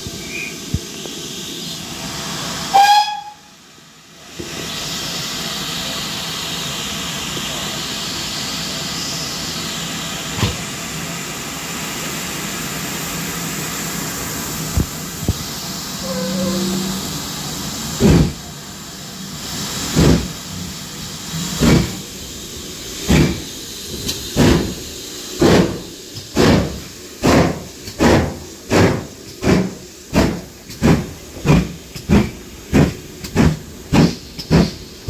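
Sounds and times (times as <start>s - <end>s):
hiss of escaping steam: 0.0s - 35.0s
steam whistle toot: 2.7s - 3.5s, 16.0s - 17.1s.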